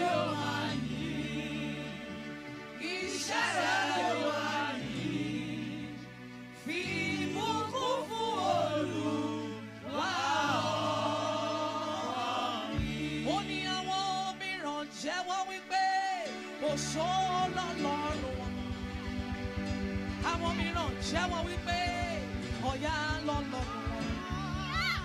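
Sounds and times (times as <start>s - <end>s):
gospel choir singing: 0.0s - 15.2s, 15.8s - 25.0s
sustained low notes: 17.5s - 25.0s.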